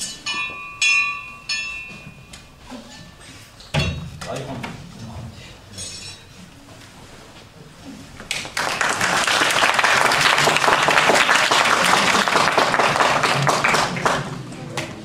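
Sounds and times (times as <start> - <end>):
audience applauding: 8.3 - 14.5.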